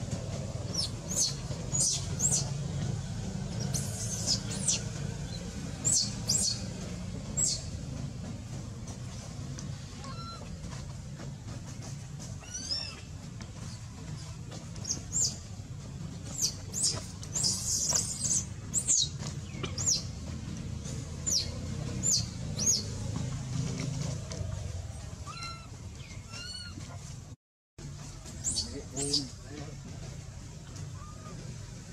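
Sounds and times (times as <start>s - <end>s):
baby monkey squealing: 12.4s - 13.1s, 25.2s - 25.7s, 26.3s - 26.8s.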